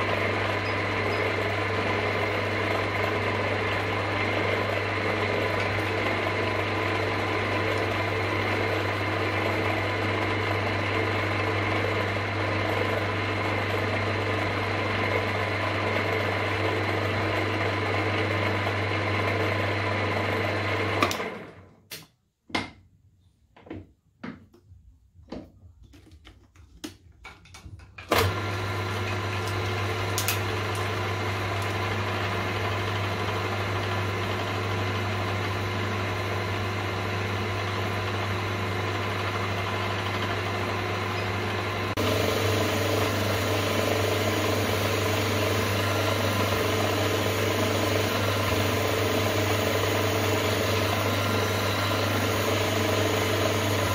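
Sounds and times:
milling machine motor humming: 0.0s - 21.0s, 28.1s - 53.9s.

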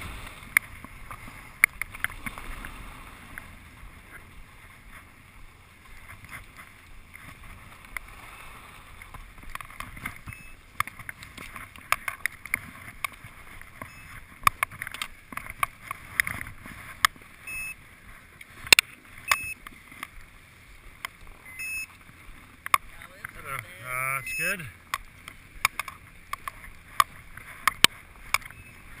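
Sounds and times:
clicks and knocks of skis and poles: 0.0s - 8.2s, 8.8s - 23.8s, 24.6s - 29.0s
short high beeps: 10.2s - 10.6s, 13.8s - 14.2s, 17.4s - 17.8s, 19.2s - 19.6s, 21.4s - 22.0s, 23.8s - 24.7s, 28.4s - 29.0s.

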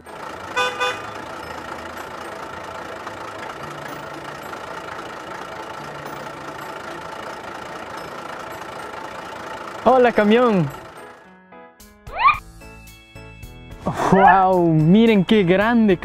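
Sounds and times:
truck engine idling: 0.0s - 11.6s
short horn beeps: 0.6s - 1.2s.

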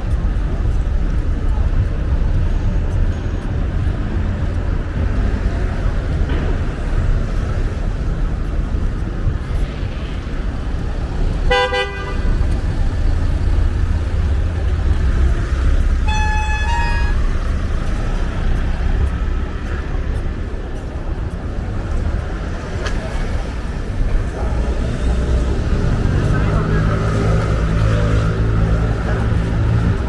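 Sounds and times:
city traffic rumble: 0.0s - 30.0s
vehicle horn toot: 11.5s - 12.3s, 16.0s - 17.3s.

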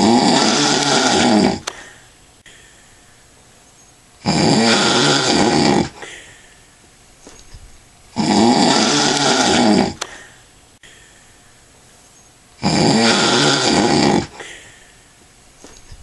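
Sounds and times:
man snoring: 0.0s - 1.9s, 4.2s - 6.1s, 8.2s - 10.3s, 12.6s - 14.7s
quiet breathing: 0.0s - 3.6s, 4.9s - 6.9s, 8.8s - 12.1s, 14.2s - 16.0s.

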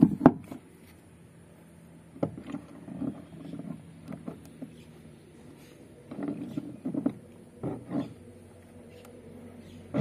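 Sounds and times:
faint knocks and scrapes: 2.2s - 9.2s.

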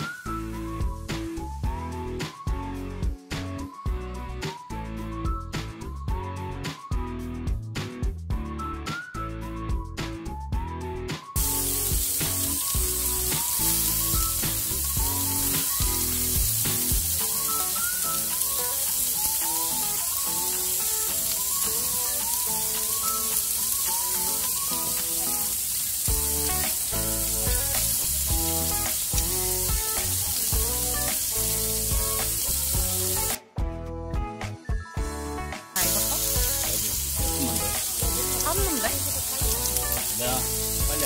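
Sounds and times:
background music with beat: 0.0s - 41.0s
meat sizzling on grill pan: 11.4s - 33.4s, 35.8s - 41.0s.

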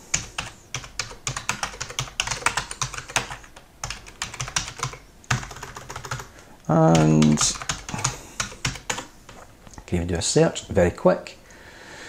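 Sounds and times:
typing on keyboard: 0.1s - 9.4s.

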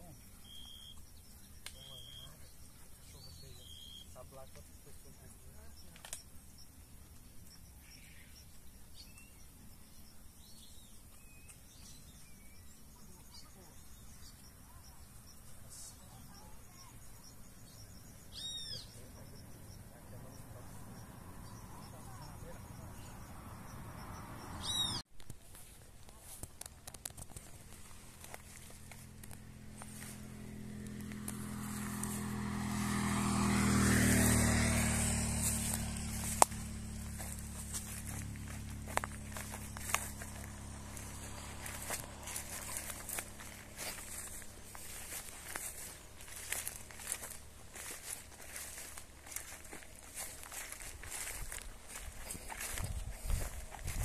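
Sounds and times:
faint bird chirps: 0.0s - 23.8s, 24.6s - 25.0s
vehicle engine passing by: 11.8s - 25.0s, 27.4s - 54.0s.

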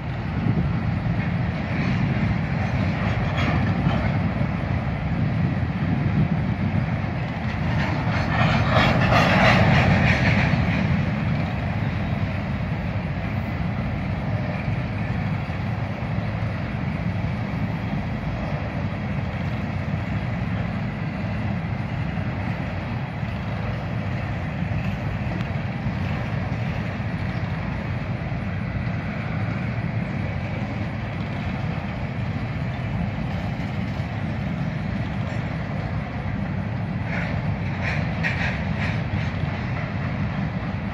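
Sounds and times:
clickety-clack over rail joints: 0.0s - 40.9s
freight train wheels rumbling: 0.0s - 40.9s.

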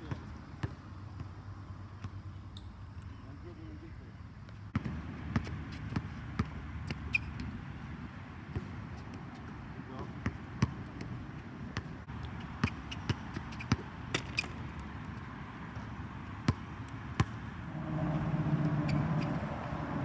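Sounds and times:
basketball bouncing on hard court: 0.0s - 1.3s, 4.8s - 7.1s, 10.2s - 11.2s, 12.6s - 14.6s
steady low hum: 17.6s - 20.0s.

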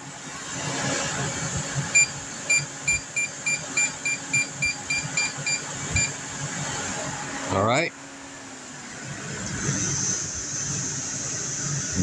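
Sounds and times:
air conditioner fan running: 0.0s - 12.0s
control panel short beeps: 2.0s - 6.1s.

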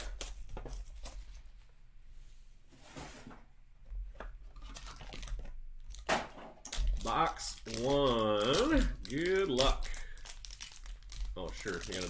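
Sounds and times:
plastic shrink-wrap crinkling: 4.6s - 12.0s.

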